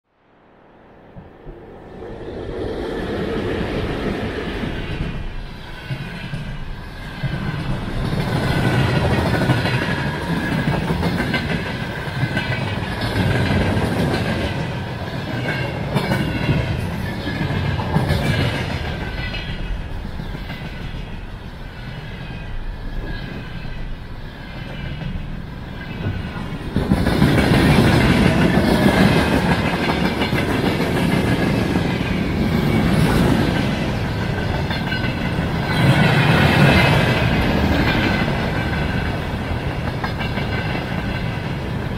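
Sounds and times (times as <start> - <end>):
train wheels rumbling on rails: 1.1 - 41.9
wheels clacking over rail joints: 24.7 - 41.9.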